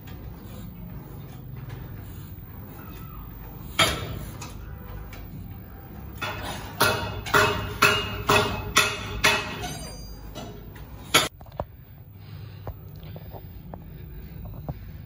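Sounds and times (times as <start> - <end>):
metallic clanks of weight stack: 1.2 - 11.3.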